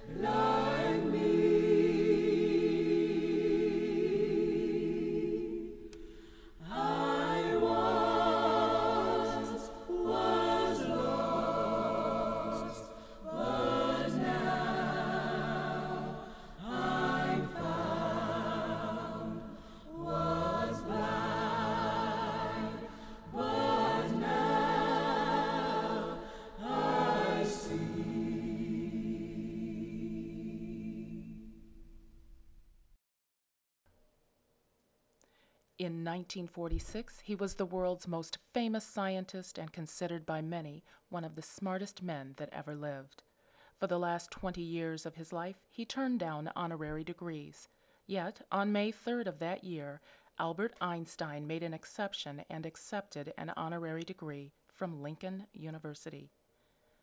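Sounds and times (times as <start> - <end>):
choir singing a cappella: 0.0 - 32.0.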